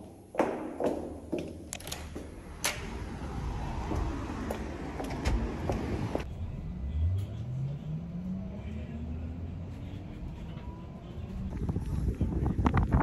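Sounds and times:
footsteps: 0:00.0 - 0:06.3
vehicle drive hum: 0:01.8 - 0:13.0.

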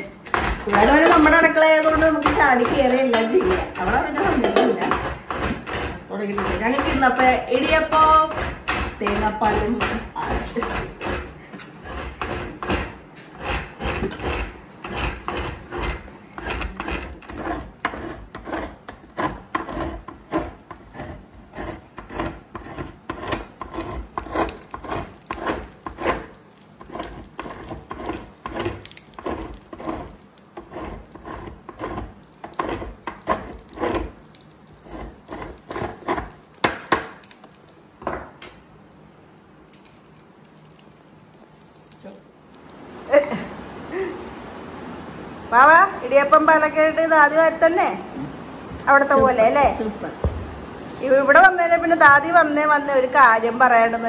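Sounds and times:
dough press rubbing strokes: 0:00.2 - 0:37.5.

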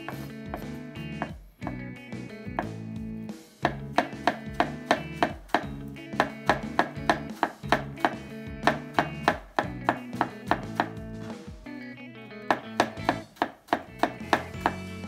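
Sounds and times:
knife chopping on cutting board: 0:00.0 - 0:01.8, 0:02.5 - 0:02.8, 0:03.6 - 0:11.0, 0:12.5 - 0:14.9
background music: 0:00.0 - 0:15.0.

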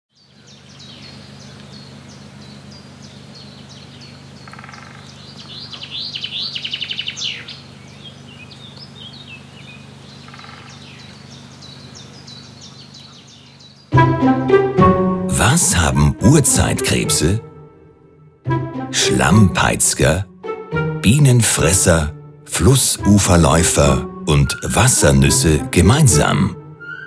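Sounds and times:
songbirds chirping: 0:00.1 - 0:27.0
bird trill: 0:00.2 - 0:13.9, 0:26.7 - 0:27.0
steady low hum: 0:14.0 - 0:26.9.

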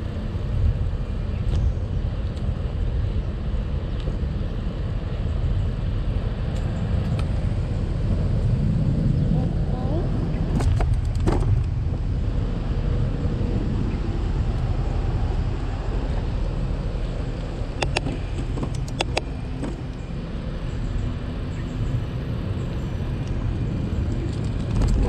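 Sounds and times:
wind and road rumble: 0:00.0 - 0:25.0
sharp clicks: 0:17.8 - 0:19.3.

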